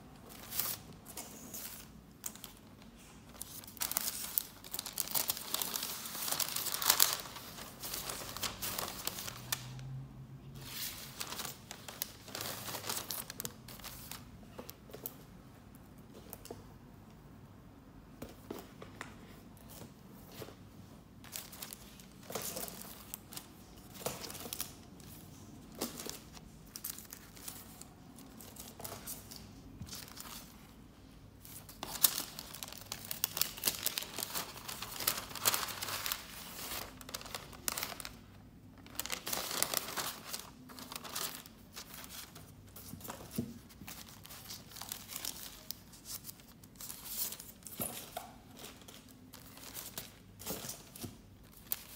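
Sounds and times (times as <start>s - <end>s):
paper sleeves rustling: 0.2s - 9.6s, 31.4s - 38.2s, 38.8s - 47.6s.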